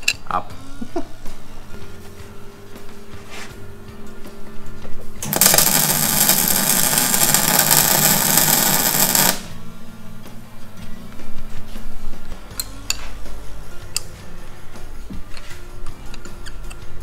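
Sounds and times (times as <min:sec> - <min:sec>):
background music: 0:00.0 - 0:17.0
workshop tool running: 0:05.2 - 0:09.6.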